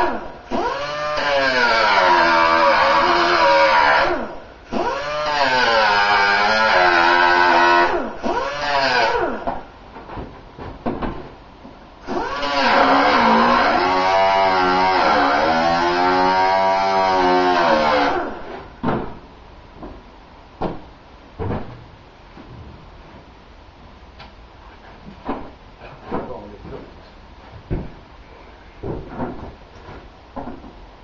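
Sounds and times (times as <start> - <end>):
electric grinder grinding metal: 0.6 - 4.2, 4.8 - 9.3, 12.1 - 18.4.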